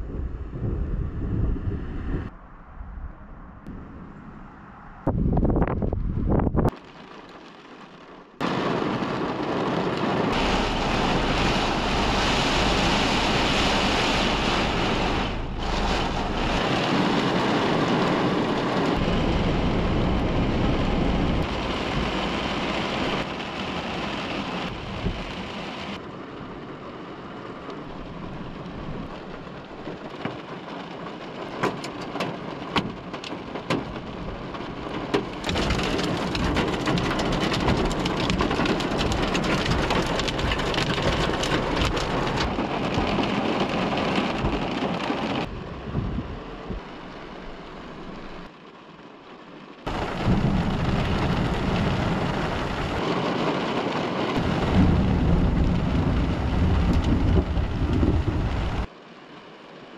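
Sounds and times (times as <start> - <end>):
thunder rumbling: 0.0 - 7.4, 8.4 - 26.8, 32.9 - 48.5, 49.9 - 58.9
heavy rain on a car: 6.6 - 59.9
raindrop taps: 27.7 - 45.5, 54.4 - 58.7.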